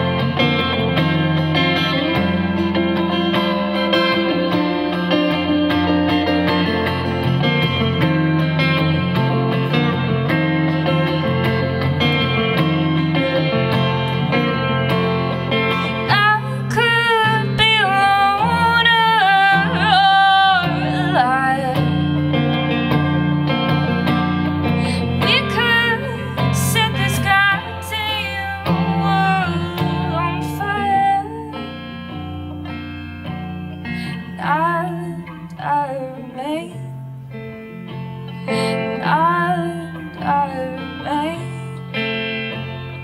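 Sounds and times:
guitar playing: 0.0s - 43.0s
woman singing slow song: 15.6s - 22.3s, 24.6s - 32.4s, 33.6s - 37.0s, 38.4s - 42.6s.

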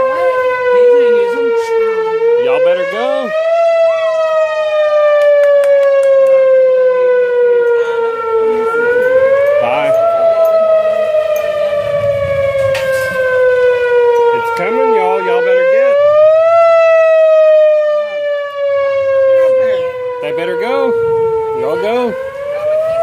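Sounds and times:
warning siren wailing: 0.0s - 23.0s.

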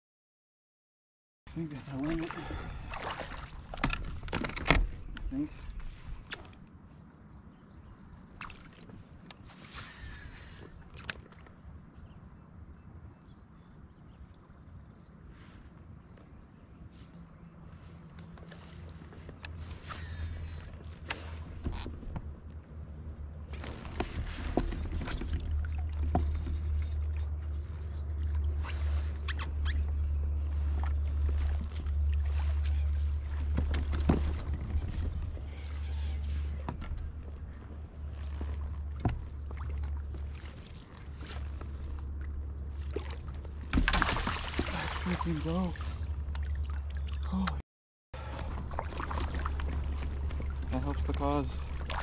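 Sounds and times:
high insect drone: 11.6s - 47.4s
low wind rumble: 19.0s - 45.0s
short squeaks: 19.5s - 22.0s.

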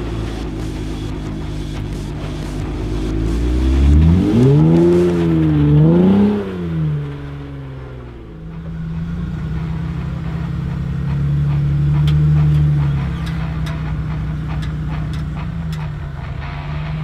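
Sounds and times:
car engine revving: 0.0s - 17.0s.

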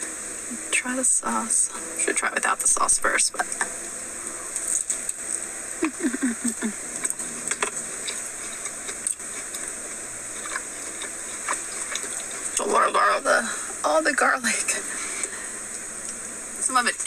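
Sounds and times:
steady hiss: 0.0s - 17.0s
person humming: 5.8s - 6.8s
person chewing: 7.0s - 12.6s.

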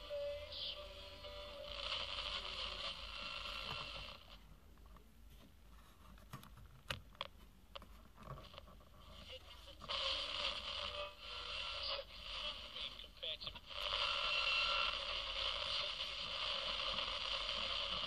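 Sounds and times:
radio broadcast through small speaker: 0.0s - 4.4s, 8.2s - 18.0s.

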